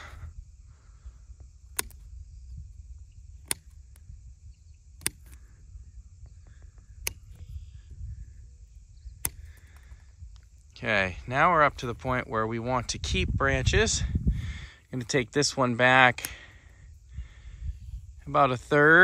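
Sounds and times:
pruners snipping branches: 1.6s - 2.2s, 3.3s - 4.1s, 4.9s - 5.6s, 6.5s - 7.6s, 9.1s - 10.5s.

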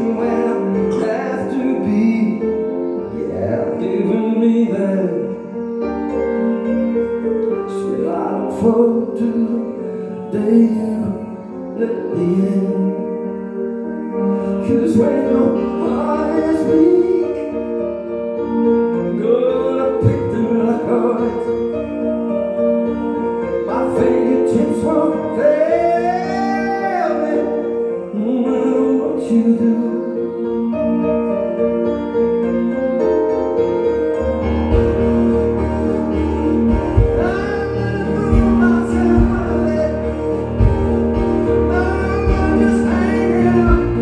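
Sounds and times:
person singing: 0.0s - 17.8s, 23.6s - 31.8s, 35.2s - 44.0s
stage piano chords: 0.0s - 44.0s
synthesizer sustained chords: 19.7s - 44.0s.

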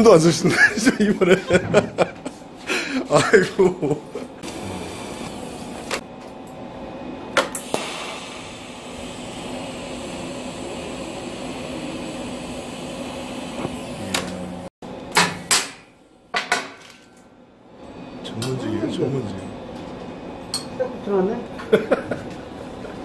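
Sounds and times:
welding arc hissing: 4.4s - 6.0s, 7.5s - 14.7s.

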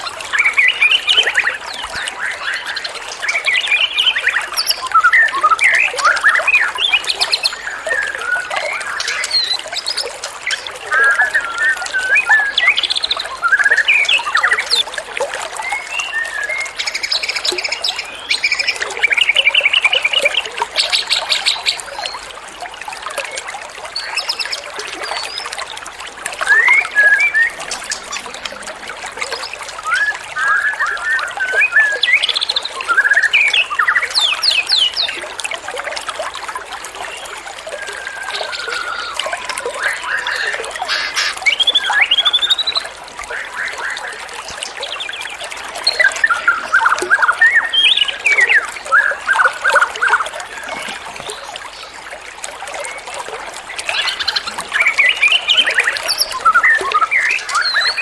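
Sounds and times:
water trickling: 0.0s - 58.0s
songbirds chirping and trilling: 37.1s - 58.0s.

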